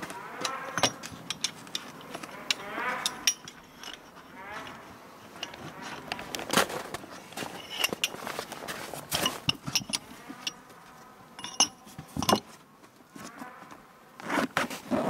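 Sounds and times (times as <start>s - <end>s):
metallic clink: 0.4s - 4.2s, 7.5s - 8.2s, 9.2s - 10.6s, 11.4s - 12.5s
zipper pulled shut: 14.2s - 15.0s.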